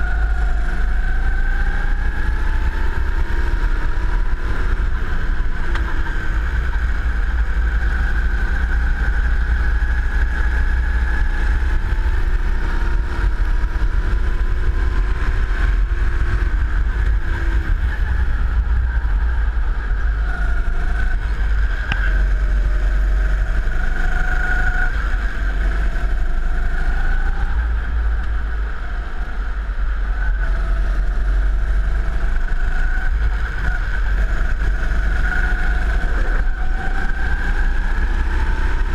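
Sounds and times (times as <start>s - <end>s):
go-kart engine running: 0.0s - 38.9s
heavy low rumble: 0.0s - 38.9s.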